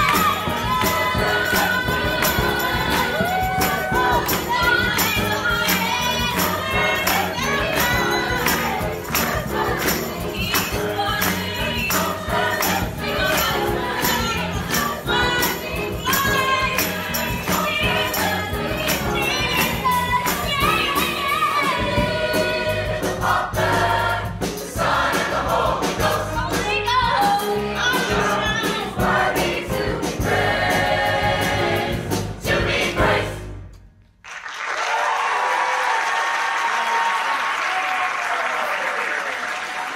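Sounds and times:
audience applause: 0.0 - 5.0, 34.2 - 39.9
choir singing: 0.0 - 33.6
piano and band: 0.0 - 34.4.

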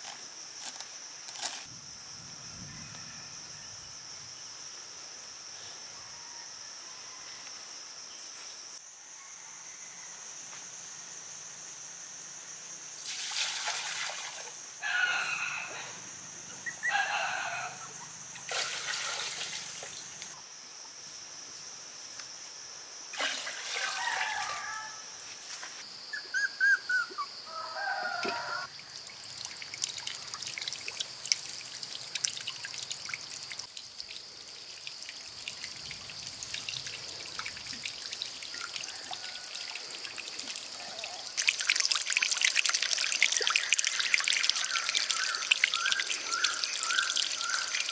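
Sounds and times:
steady high-pitched whine: 0.0 - 13.0
water trickling and pouring: 13.0 - 14.5, 28.7 - 47.9.

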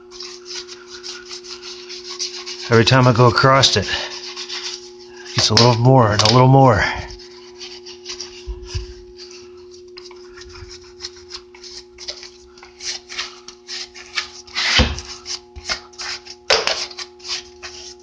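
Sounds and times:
pad scrubbing rusty steel: 0.0 - 6.0
steady low hum: 0.0 - 18.0.

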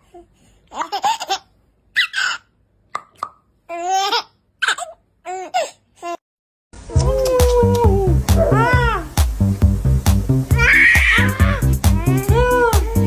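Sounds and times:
baby laughing: 0.7 - 2.5, 3.7 - 6.2, 7.0 - 9.2, 10.5 - 13.0.

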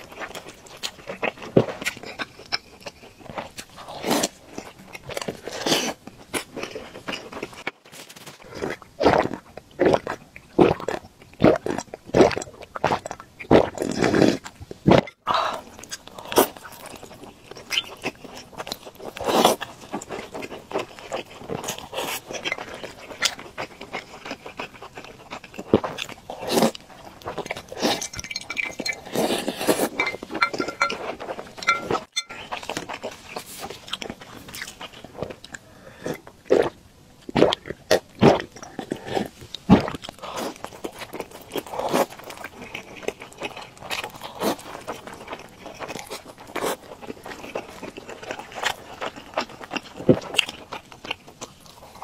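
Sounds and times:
sipping: 27.4 - 32.6.

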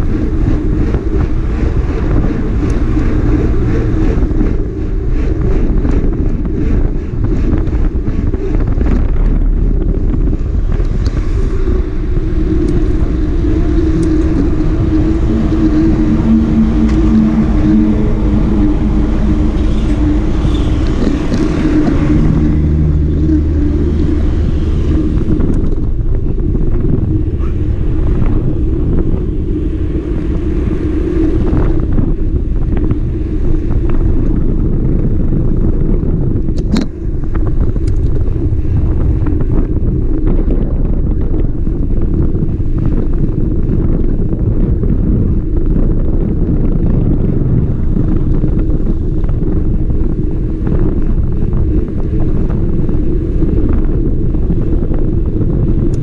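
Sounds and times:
motorcycle engine running: 0.0 - 30.6
wind rush on microphone: 0.0 - 56.0.

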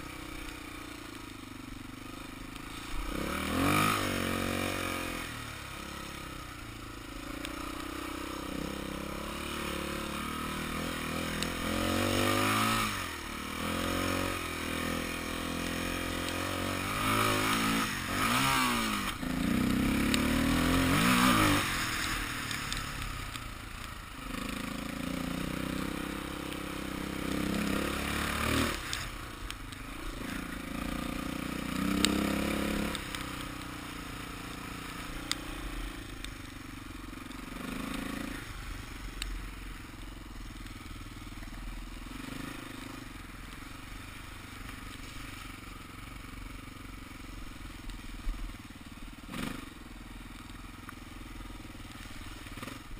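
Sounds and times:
dirt bike engine revving: 2.6 - 23.3, 24.1 - 36.3, 37.2 - 39.0, 49.2 - 49.8.

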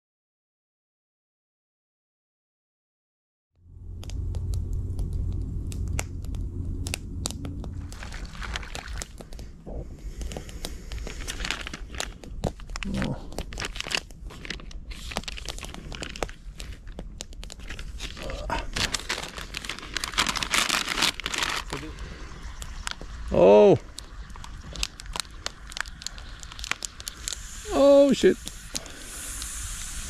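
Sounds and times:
low rumble: 3.6 - 30.0
sharp clicks and crackles: 3.7 - 30.0
food pouch crinkling and rustling: 7.1 - 23.2, 23.9 - 29.0.

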